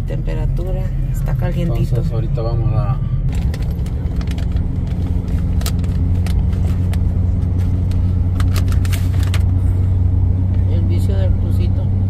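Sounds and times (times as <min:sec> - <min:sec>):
engine rumble inside truck cab: 0:00.0 - 0:12.0.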